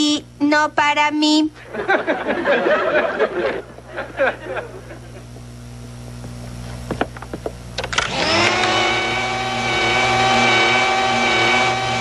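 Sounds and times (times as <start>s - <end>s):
vacuum cleaner motor whine: 3.9s - 12.0s.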